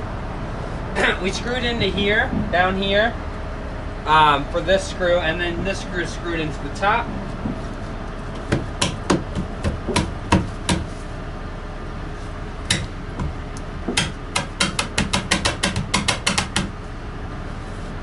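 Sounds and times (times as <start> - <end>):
knocks on wooden board: 8.5 - 10.9, 12.7 - 16.7.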